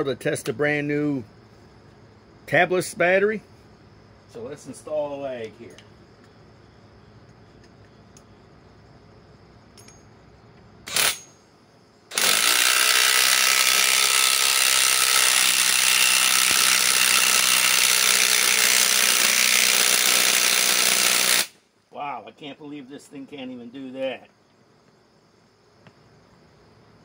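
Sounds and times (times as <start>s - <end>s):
impact wrench hammering screw into wood: 12.1s - 21.5s.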